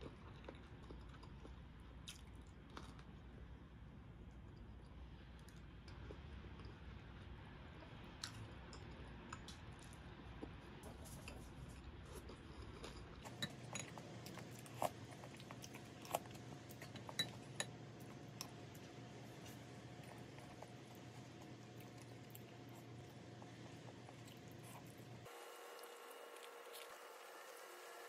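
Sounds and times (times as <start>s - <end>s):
chopsticks clinking on ceramic bowls: 13.2s - 14.9s, 16.7s - 17.8s.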